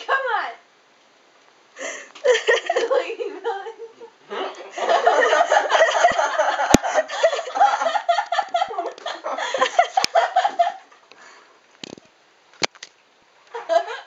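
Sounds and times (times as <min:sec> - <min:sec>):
laughter: 0:02.2 - 0:11.0, 0:13.5 - 0:14.0
sharp clicks: 0:11.8 - 0:13.0.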